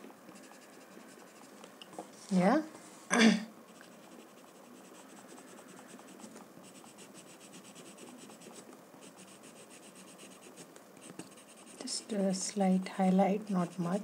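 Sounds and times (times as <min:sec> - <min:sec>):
pencil scratching on paper: 0:00.4 - 0:01.6, 0:03.7 - 0:12.3, 0:13.4 - 0:14.0.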